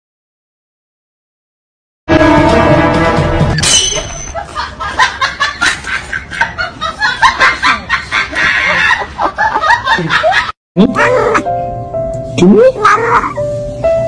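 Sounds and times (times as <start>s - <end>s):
person giggling: 7.2s - 11.5s.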